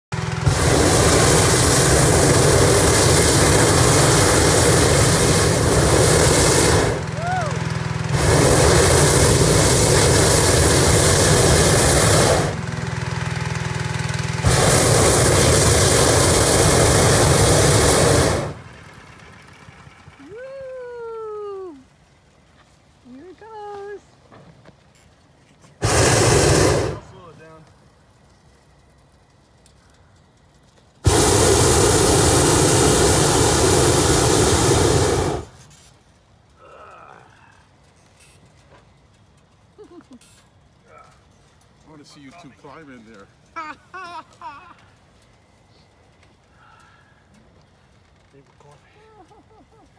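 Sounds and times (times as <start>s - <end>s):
small petrol engine running: 0.1s - 24.0s, 25.8s - 36.7s
propane burner roaring hiss: 0.1s - 49.9s.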